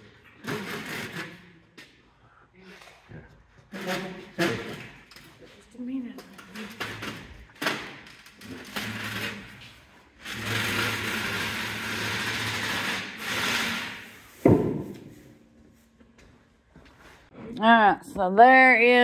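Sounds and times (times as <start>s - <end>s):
loud thump: 14.4s - 15.1s.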